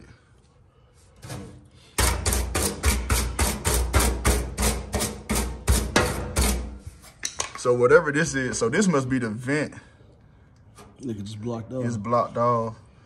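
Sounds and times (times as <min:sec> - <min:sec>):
stiff brush scrubbing metal: 0:01.2 - 0:07.1.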